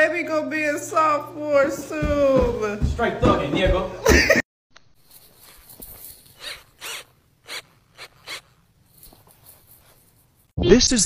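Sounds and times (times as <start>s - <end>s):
cordless drill rasping into wood: 5.4s - 10.1s.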